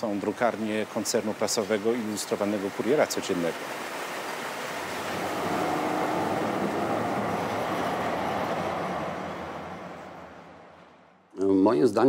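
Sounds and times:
tram rolling on rails: 0:04.7 - 0:11.0.

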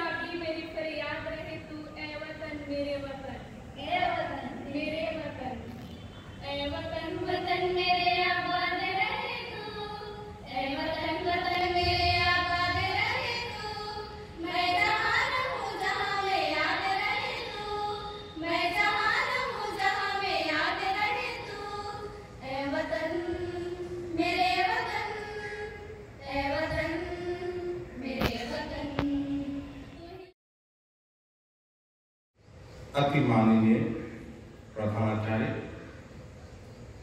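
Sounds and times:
women singing in unison: 0:06.4 - 0:30.3.

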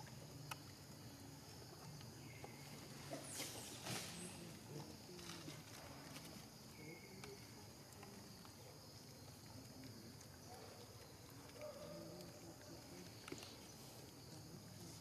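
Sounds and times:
insect drone: 0:00.0 - 0:15.0.

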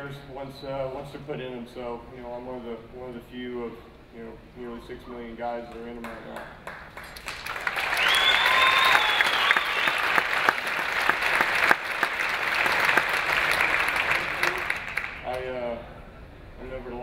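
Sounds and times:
audience applauding: 0:06.0 - 0:15.4
high whistling tone: 0:07.9 - 0:10.2.

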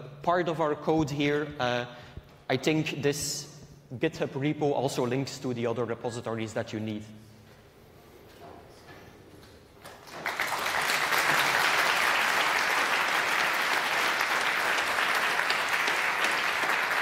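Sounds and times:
audience applause: 0:09.9 - 0:17.0.

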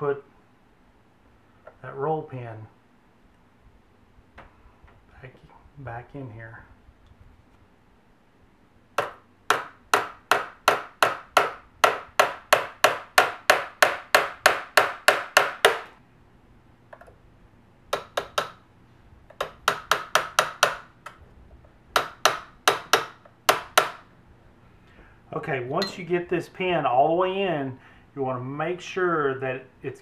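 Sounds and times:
hammer tapping a punch: 0:09.0 - 0:15.9, 0:17.9 - 0:18.6, 0:19.3 - 0:21.2, 0:22.0 - 0:24.0.

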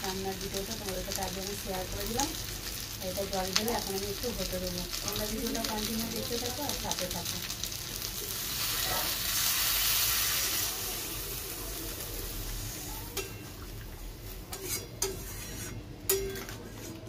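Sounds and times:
food sizzling in a wok: 0:00.0 - 0:17.0
metal spatula scraping pan: 0:14.5 - 0:17.0.

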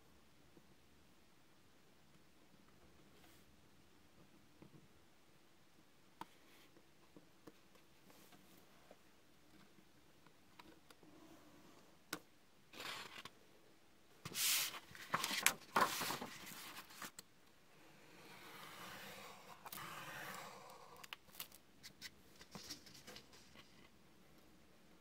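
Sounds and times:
paper scraping rustles: 0:14.3 - 0:17.1.

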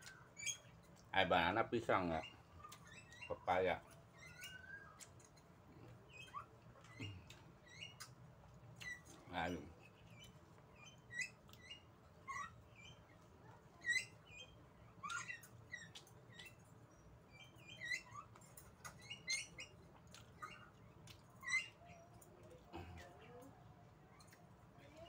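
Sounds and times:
wet chewing and lip-smacking: 0:02.6 - 0:03.2, 0:04.8 - 0:09.3, 0:10.1 - 0:12.0, 0:15.0 - 0:16.8, 0:18.2 - 0:23.0, 0:23.9 - 0:24.8.

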